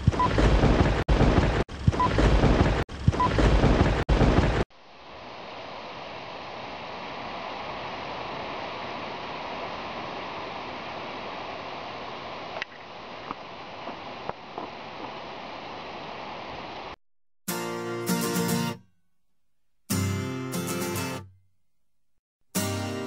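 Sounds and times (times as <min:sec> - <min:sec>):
loud crackling noise: 0:00.0 - 0:04.7.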